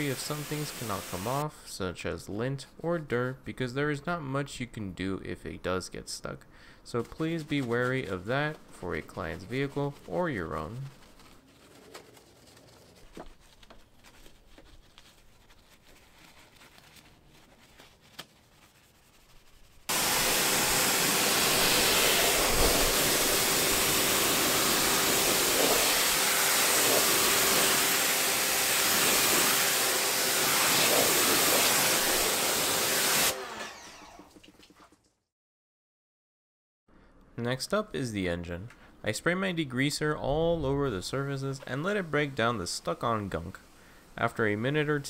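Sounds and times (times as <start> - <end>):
pressure washer spraying: 0.0 - 1.4, 19.9 - 33.4
faint brushing and handling: 6.9 - 19.9.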